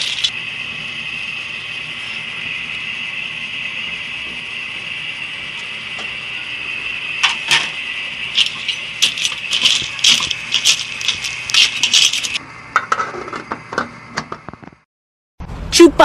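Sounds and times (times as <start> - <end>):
steady hiss: 0.0 - 12.4
snail shells clinking in metal pot: 8.3 - 12.4.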